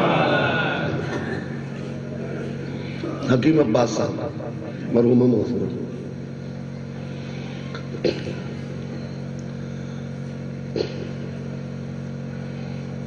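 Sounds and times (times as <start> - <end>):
steady electrical hum: 0.0 - 13.0.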